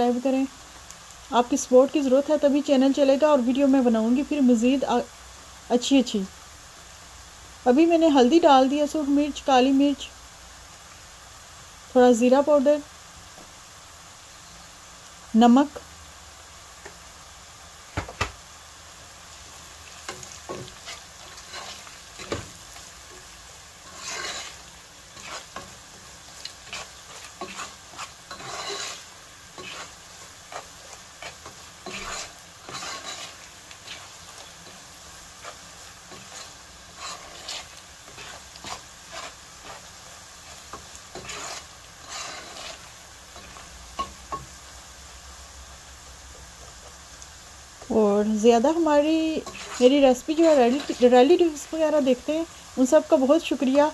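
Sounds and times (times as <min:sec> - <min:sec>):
onions sizzling in oil: 0:00.0 - 0:53.9
spatula scraping a pot: 0:19.9 - 0:23.2, 0:23.8 - 0:44.4, 0:49.4 - 0:51.2.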